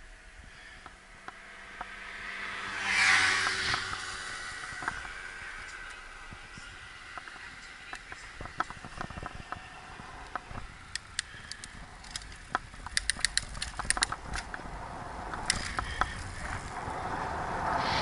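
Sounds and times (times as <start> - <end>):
tyres rumbling on tarmac: 1.2 - 18.0
wind noise on microphone: 3.5 - 18.0
bicycle clicking and ticking: 7.1 - 14.7, 15.3 - 16.4.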